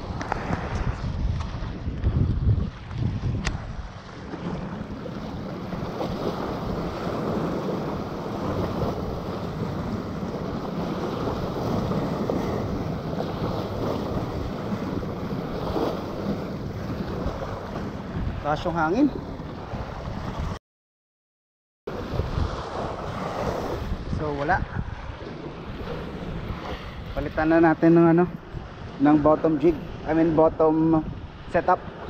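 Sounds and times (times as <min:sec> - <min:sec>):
wind blowing over microphone: 0:00.0 - 0:20.6, 0:21.9 - 0:32.0.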